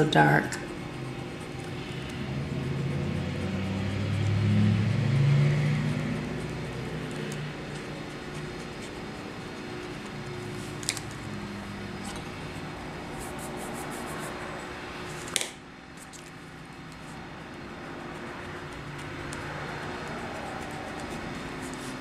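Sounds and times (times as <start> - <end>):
low room hum: 0.0 - 22.0
eraser clicking on paper: 16.9 - 22.0.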